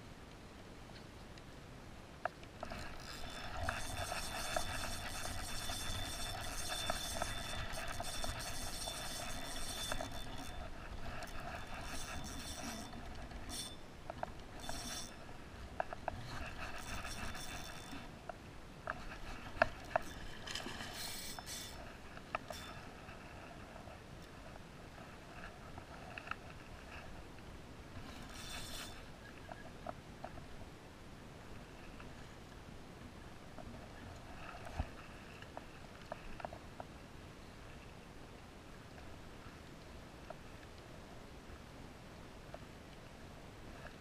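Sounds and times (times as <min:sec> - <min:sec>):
reel clicks: 0:02.2 - 0:18.2, 0:18.8 - 0:23.0, 0:28.0 - 0:30.5
fishing reel gears whirring: 0:02.6 - 0:13.9, 0:14.5 - 0:15.3, 0:15.9 - 0:18.1, 0:18.9 - 0:21.8, 0:22.4 - 0:22.8, 0:28.0 - 0:29.1.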